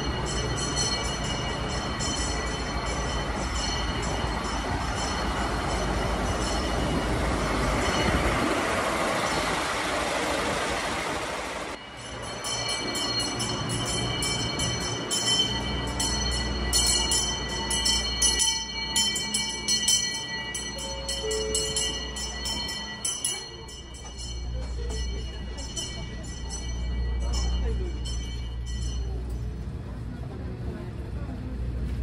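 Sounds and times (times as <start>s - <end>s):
train rumbling past: 0.0s - 32.0s
hand bell ringing rapidly: 12.0s - 29.3s.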